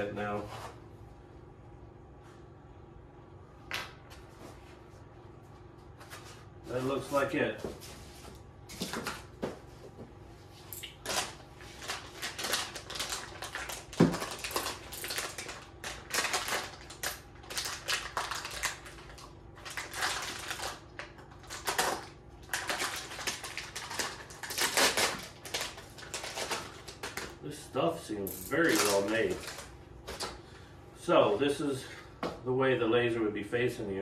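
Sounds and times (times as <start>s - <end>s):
plastic bag crinkling: 10.8s - 27.4s, 28.5s - 30.3s.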